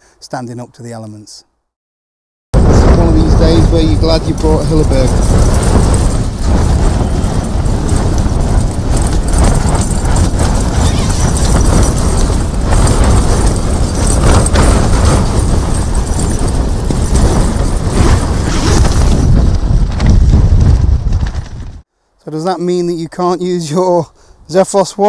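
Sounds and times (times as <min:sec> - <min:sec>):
tent fabric flapping: 0:02.6 - 0:21.9
wind on microphone: 0:02.6 - 0:21.9
wind rushing: 0:02.6 - 0:21.9.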